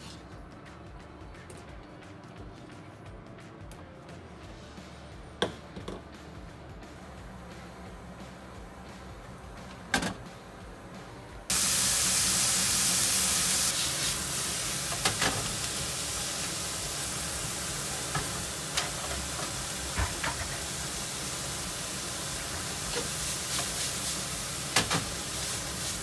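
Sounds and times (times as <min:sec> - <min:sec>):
vegetables sizzling in oil: 0:11.5 - 0:26.0.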